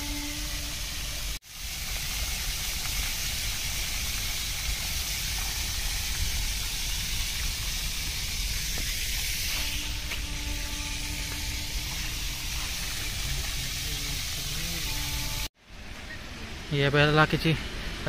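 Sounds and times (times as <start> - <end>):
fountain water splashing: 1.1 - 9.2, 11.6 - 15.4.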